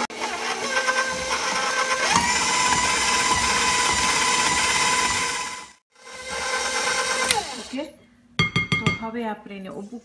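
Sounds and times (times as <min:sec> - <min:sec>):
stand mixer motor whine: 0:00.0 - 0:07.7.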